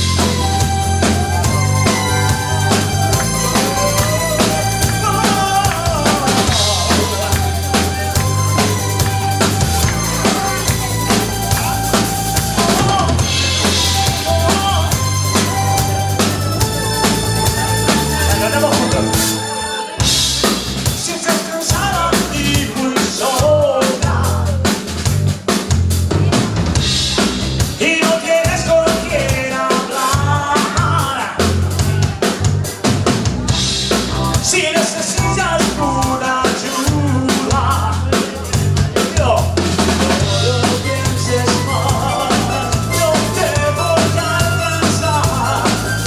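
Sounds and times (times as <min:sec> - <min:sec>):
pitched melody: 0:00.0 - 0:22.8, 0:39.6 - 0:46.0
drum kit: 0:00.0 - 0:46.0
live band playing: 0:00.0 - 0:46.0.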